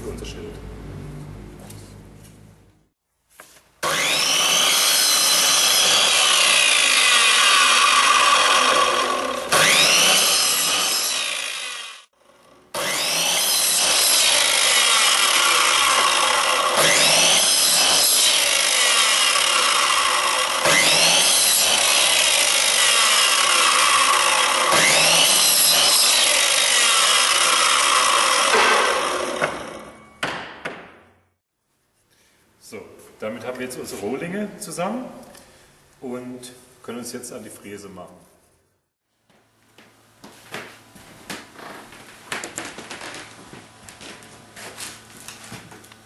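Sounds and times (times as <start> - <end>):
mitre saw cutting wood: 3.8 - 30.0.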